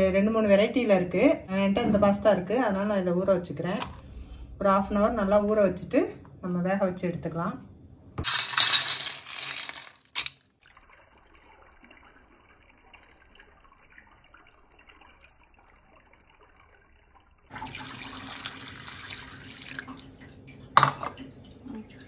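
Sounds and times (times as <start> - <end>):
dry pasta rattling into colander: 8.2 - 10.3
water splashing over pasta: 10.6 - 22.0.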